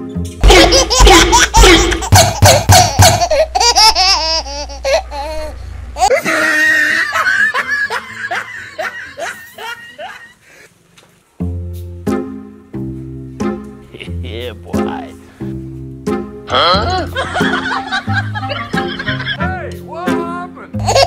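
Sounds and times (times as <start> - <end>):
rapid bursts of laughing: 0.4 - 5.4
high-pitched wavering laugh: 0.4 - 10.4.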